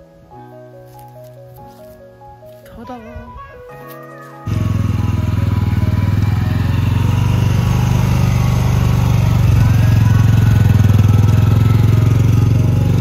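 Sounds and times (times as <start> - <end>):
utility vehicle engine running: 4.5 - 13.0.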